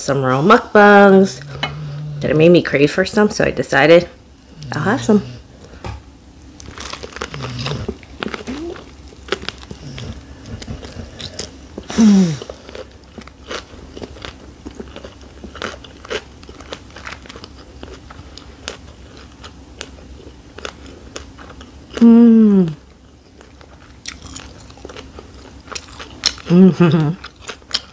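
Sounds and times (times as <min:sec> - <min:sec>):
person chewing with light crunch: 0:06.6 - 0:27.9
person humming mmm: 0:07.4 - 0:08.9, 0:10.8 - 0:12.6, 0:21.9 - 0:22.9, 0:26.4 - 0:27.2.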